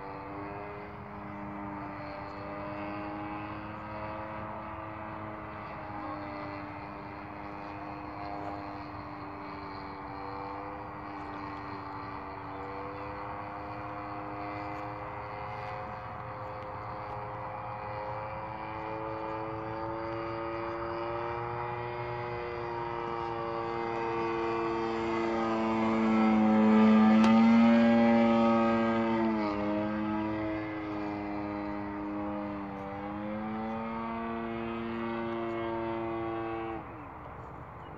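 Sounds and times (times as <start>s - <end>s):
model airplane motor droning: 0.0s - 37.9s.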